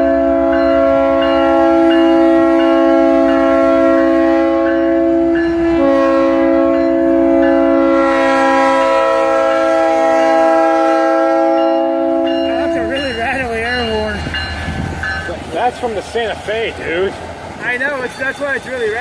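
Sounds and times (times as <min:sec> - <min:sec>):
locomotive air horn blast: 0:00.0 - 0:13.0.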